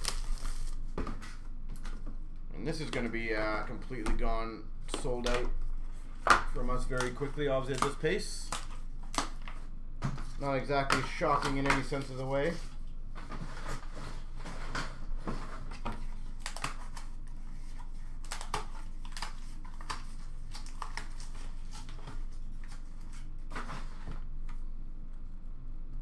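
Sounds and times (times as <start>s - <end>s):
low steady hum: 0.0s - 26.0s
hands handling cards and cardboard: 4.9s - 14.0s.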